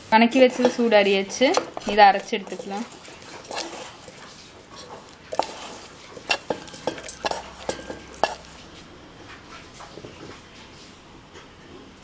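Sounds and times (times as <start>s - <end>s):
wooden spatula scraping pan: 0.0s - 8.7s.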